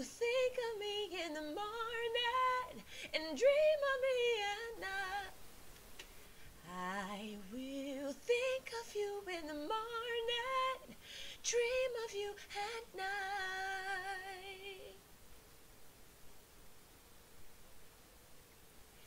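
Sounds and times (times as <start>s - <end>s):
woman singing: 0.0s - 5.4s, 6.6s - 15.0s.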